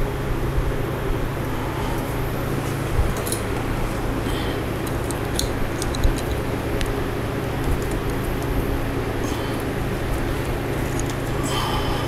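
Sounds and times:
steady hum: 0.0s - 12.0s
clicks and rustles of wires: 2.0s - 8.7s, 9.5s - 11.4s.

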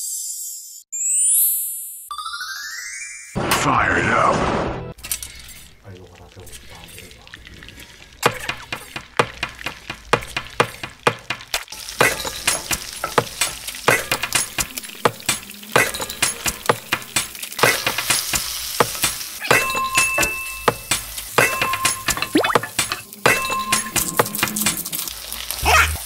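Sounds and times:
wooden spatula stirring in pan: 5.0s - 25.6s
fish fillet sizzling: 5.0s - 26.0s
salt shaker clicking: 20.0s - 23.0s.

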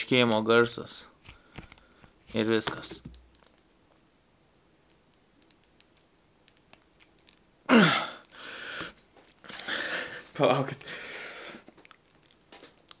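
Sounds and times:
man grunting: 7.7s - 8.2s.

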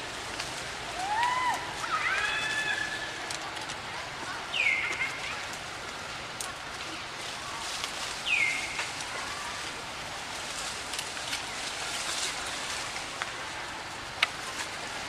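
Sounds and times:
outdoor background hiss: 0.0s - 15.0s.

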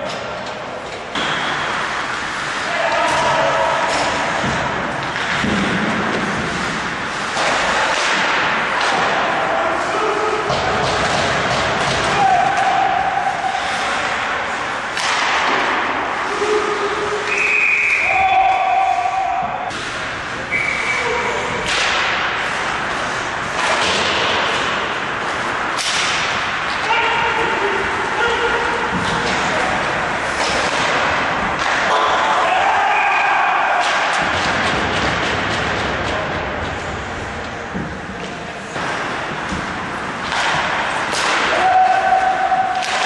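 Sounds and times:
skates scraping on ice: 0.7s - 10.0s
puck cracking on rink boards: 13.6s - 15.9s, 21.6s - 22.9s, 37.8s - 43.0s.

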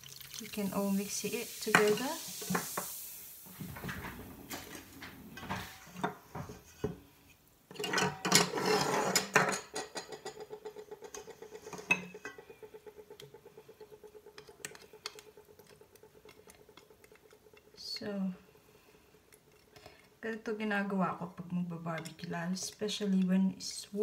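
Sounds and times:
spatula scraping steel bowl: 7.9s - 9.4s.

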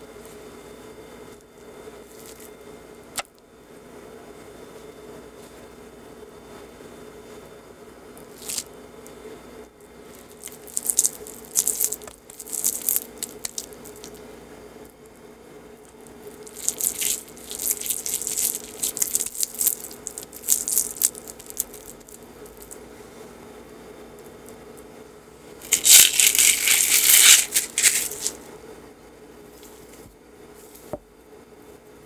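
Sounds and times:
faint steady hum: 0.0s - 32.0s
crackly rustling of sticky filling: 1.3s - 2.6s, 8.1s - 9.2s, 9.9s - 23.3s, 25.6s - 28.5s.

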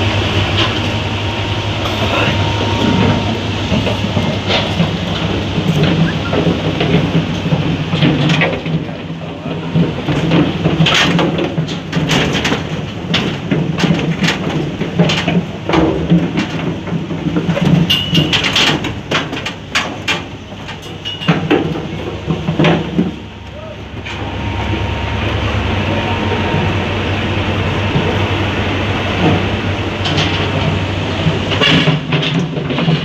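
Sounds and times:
engine droning: 0.0s - 13.3s, 21.5s - 33.0s
hooves clattering on a ramp: 3.0s - 24.2s.

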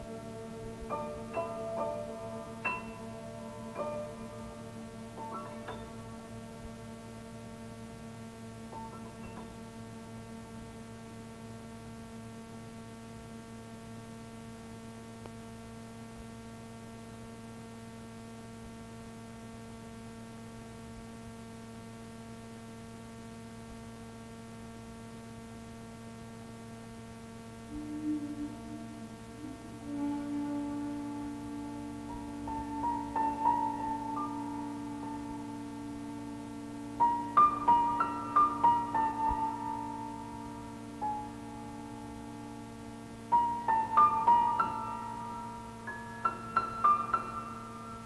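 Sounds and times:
faint musical notes: 0.0s - 10.6s, 27.6s - 48.0s
electrical mains hum: 0.0s - 48.0s
tape hiss: 0.0s - 48.0s.

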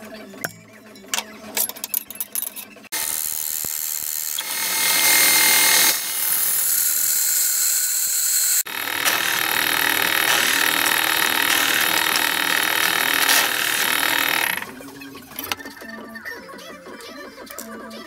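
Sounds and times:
drill press cutting steel: 2.9s - 14.8s.

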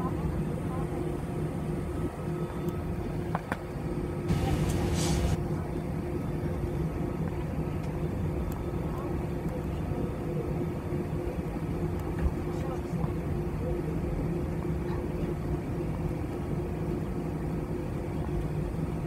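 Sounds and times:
aircraft engine hum: 0.0s - 19.0s
brief hiss: 4.3s - 5.4s.

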